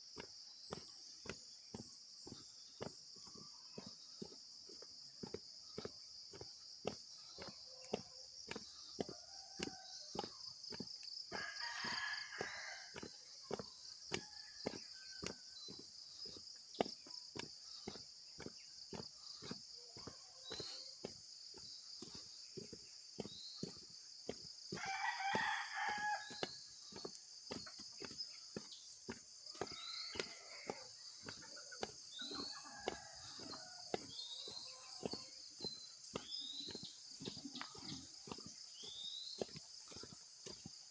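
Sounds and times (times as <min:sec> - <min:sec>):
footsteps on dirt path: 0:00.0 - 0:40.9
rooster crowing: 0:08.6 - 0:10.3, 0:11.3 - 0:15.4, 0:24.7 - 0:26.6, 0:29.5 - 0:35.2.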